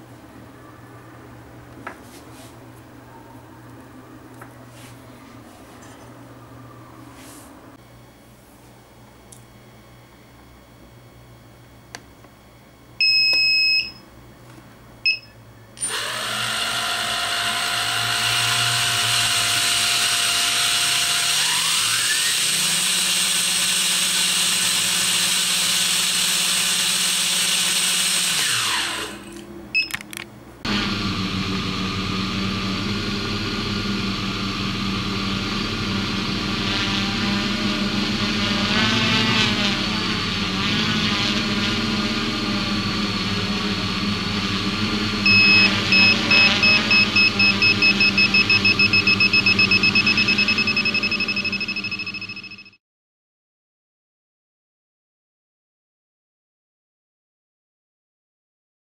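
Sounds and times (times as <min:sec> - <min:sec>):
short electronic beeps: 0:13.0 - 0:14.0, 0:15.1 - 0:15.4, 0:45.3 - 0:52.8
quadcopter motor whine: 0:15.8 - 0:29.4, 0:30.7 - 0:52.7
quadcopter motors humming in flight: 0:15.8 - 0:29.5, 0:30.7 - 0:52.4.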